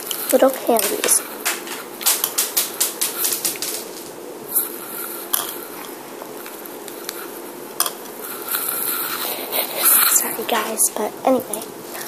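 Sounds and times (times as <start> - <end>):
hard candies clicking: 1.4 - 4.0.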